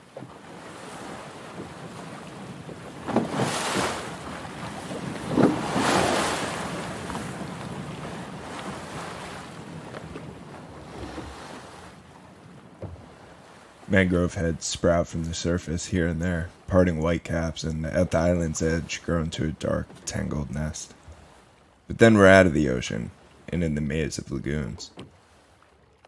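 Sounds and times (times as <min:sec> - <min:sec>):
water splashing: 0:00.0 - 0:15.8
choppy sea: 0:00.0 - 0:26.0
wind: 0:00.0 - 0:26.0.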